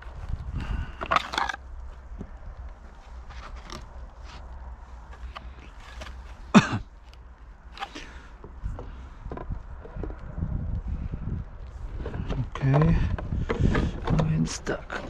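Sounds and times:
low steady rumble: 0.0 - 15.0
plastic clicking and scraping: 0.9 - 4.5, 5.1 - 10.3, 11.9 - 15.0.

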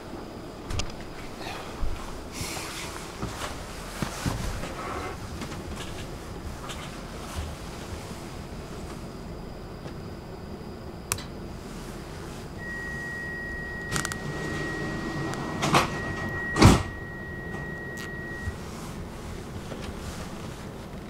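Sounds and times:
high warning tone: 12.5 - 19.3
train doors thumping shut: 15.2 - 17.7.

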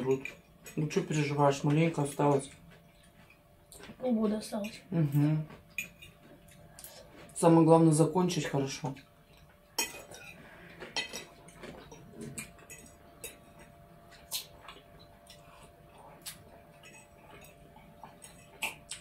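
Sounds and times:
forks clinking on plates: 9.3 - 13.7.

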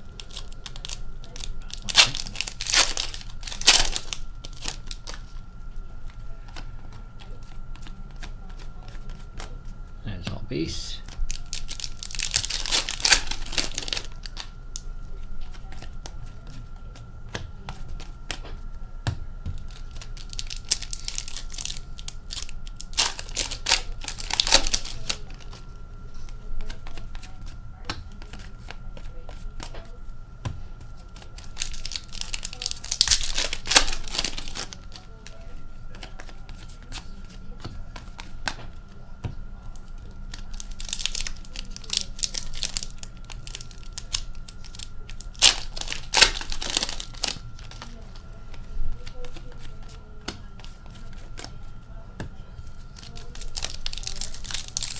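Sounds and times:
foil packs tearing and crinkling: 0.0 - 5.2, 11.3 - 14.5, 19.7 - 25.4, 31.3 - 35.1, 40.4 - 48.0, 53.0 - 54.9
card handling: 0.0 - 5.4, 6.0 - 9.8, 11.0 - 54.9.

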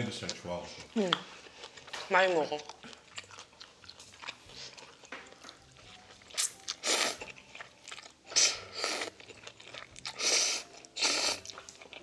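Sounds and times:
chewing: 0.2 - 12.0
noodles slurped: 8.3 - 12.0.

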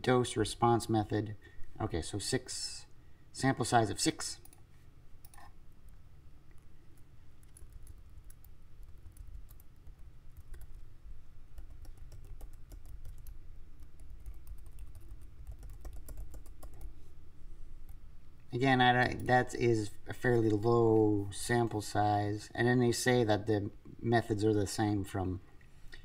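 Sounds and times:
low steady hum: 0.0 - 26.0
typing on computer keyboard: 7.4 - 10.8, 11.5 - 16.9.

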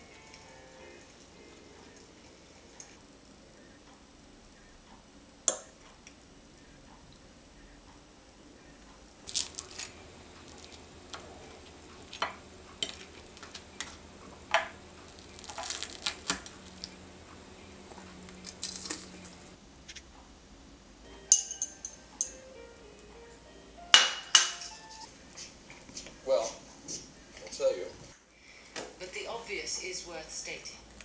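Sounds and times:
glass bowl clinking on plate: 21.3 - 22.3.

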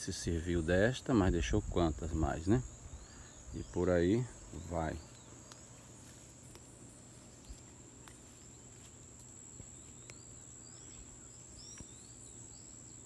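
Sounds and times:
high-pitched insect trill: 0.0 - 13.0
faint bird chirps: 2.4 - 8.8, 9.6 - 13.0.

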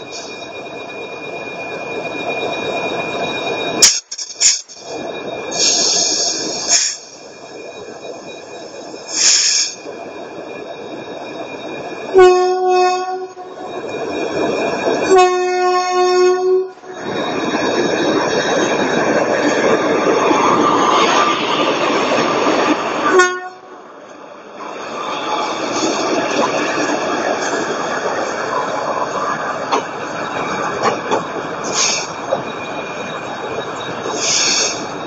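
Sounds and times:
high squeal: 0.0 - 23.2, 23.8 - 35.0
train coaches rolling by: 0.0 - 35.0
locomotive air horn: 12.1 - 13.4, 15.1 - 16.8, 23.1 - 23.7.

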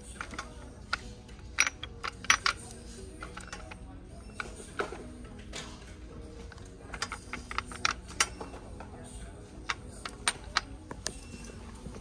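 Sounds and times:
cosmetic bottles clicking: 0.0 - 4.9, 6.4 - 8.5.

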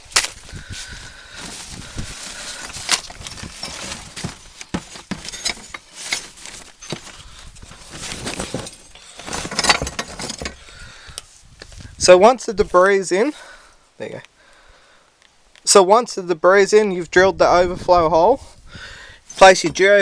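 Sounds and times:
footsteps: 0.0 - 10.6
clicks knocks and rustling: 2.7 - 7.2, 7.8 - 10.6.

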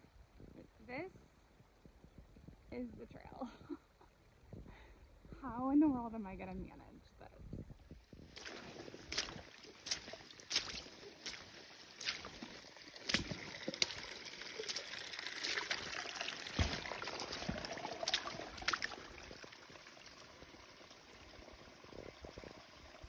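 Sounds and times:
trickling running water: 8.0 - 23.0
footsteps splashing through water: 8.1 - 19.5.

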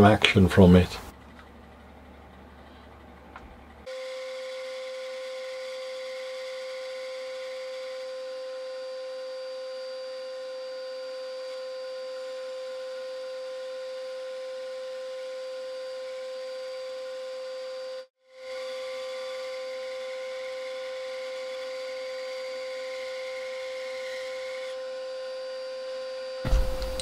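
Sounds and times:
bandsaw whining: 3.8 - 27.0
bandsaw cutting plywood: 14.6 - 24.8.

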